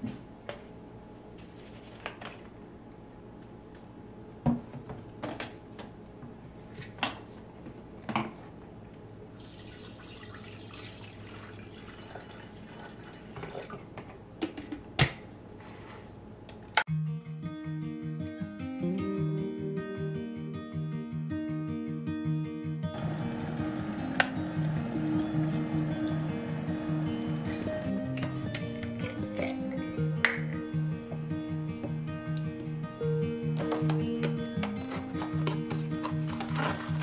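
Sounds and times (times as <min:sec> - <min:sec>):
water pouring into kettle: 0:09.3 - 0:13.9
acoustic guitar music: 0:16.9 - 0:37.0.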